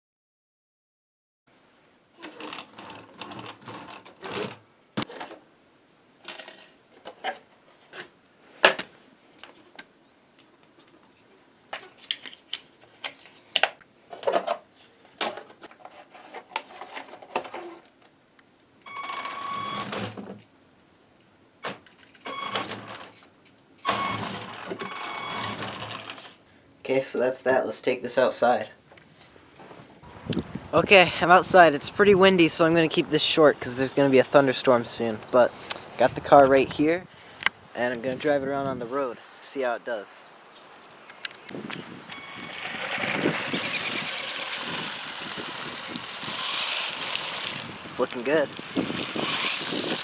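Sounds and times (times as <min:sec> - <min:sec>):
small electric motor whining: 0:42.1 - 0:50.0.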